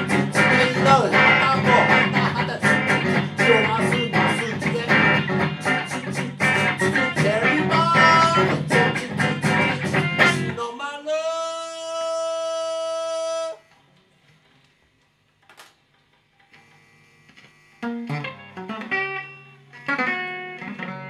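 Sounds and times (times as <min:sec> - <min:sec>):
guitar strummed and plucked: 0:00.0 - 0:10.6, 0:17.8 - 0:21.0
held guitar note: 0:00.0 - 0:10.6.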